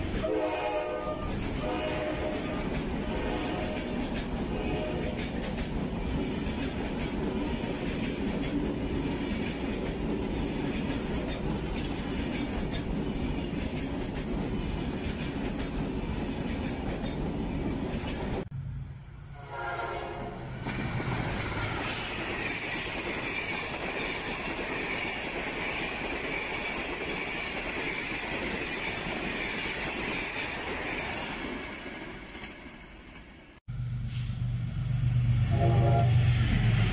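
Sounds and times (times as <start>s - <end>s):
train passing at speed: 0.0s - 36.9s.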